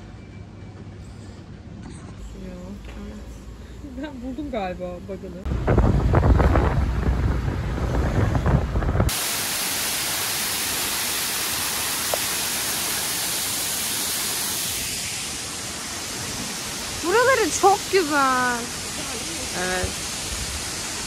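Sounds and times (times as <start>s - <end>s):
wind buffeting microphone: 5.4s - 9.2s
waterfall rushing: 9.1s - 21.0s.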